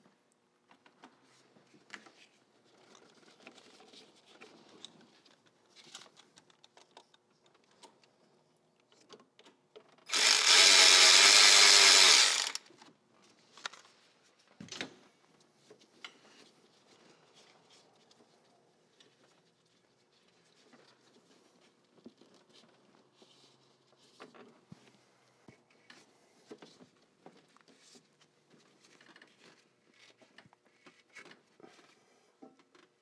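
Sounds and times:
cordless power tool running: 10.1 - 12.6.

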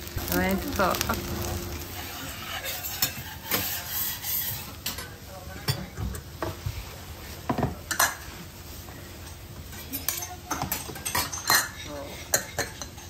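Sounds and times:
metal spatula scraping griddle: 0.0 - 5.2
faint sizzle: 0.0 - 13.0.

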